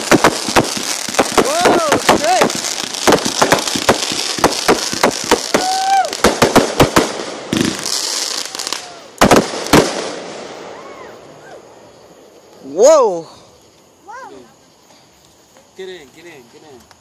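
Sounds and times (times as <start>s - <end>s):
loud firework bangs: 0.0s - 11.7s
firework hissing and crackling: 0.0s - 17.0s.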